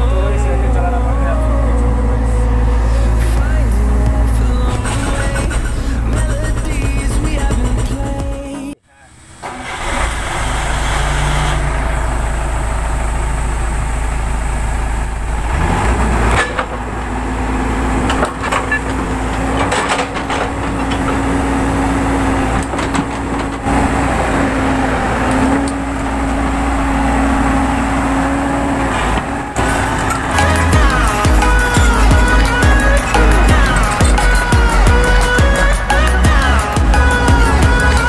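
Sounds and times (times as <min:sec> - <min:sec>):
excavator diesel engine running: 0:00.0 - 0:38.0
steady whining tone: 0:00.0 - 0:38.0
clanks: 0:02.9 - 0:08.8, 0:15.3 - 0:24.6.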